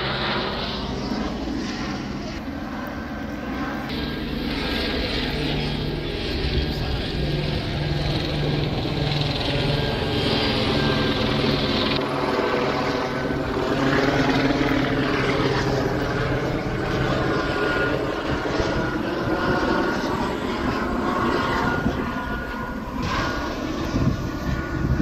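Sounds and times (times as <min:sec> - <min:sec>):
helicopter rotor drone: 0:00.0 - 0:25.0.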